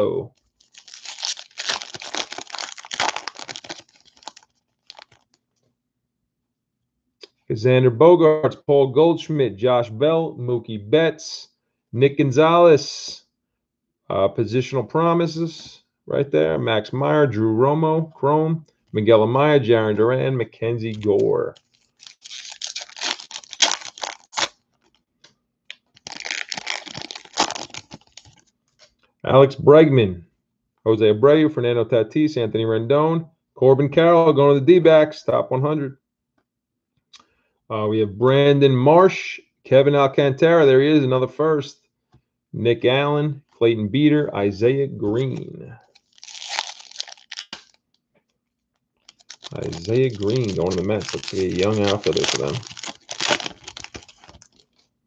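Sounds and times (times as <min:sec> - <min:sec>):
foil wrapper tearing and crinkling: 0:00.6 - 0:05.4, 0:20.9 - 0:25.0, 0:25.8 - 0:28.4, 0:45.9 - 0:47.8, 0:49.0 - 0:54.9.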